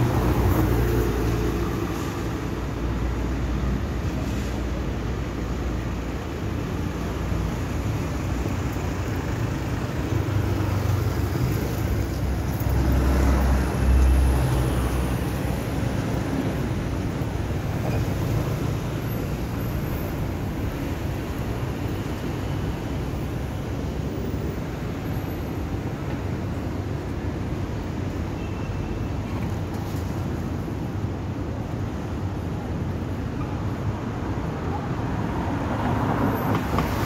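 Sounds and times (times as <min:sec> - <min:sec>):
street traffic rumble: 0:00.0 - 0:37.0.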